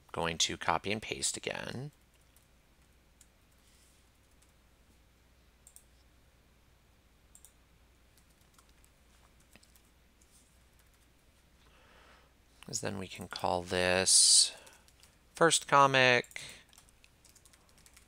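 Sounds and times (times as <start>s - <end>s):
computer mouse and keyboard clicks: 5.6s - 6.0s, 8.2s - 11.1s.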